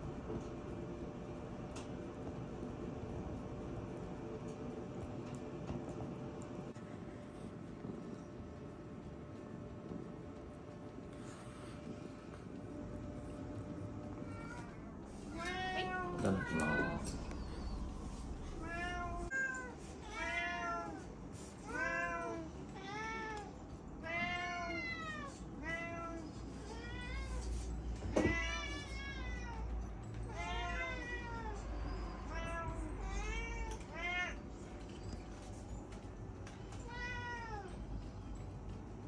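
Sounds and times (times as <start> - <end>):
cats meowing: 14.0 - 34.6, 36.6 - 37.8.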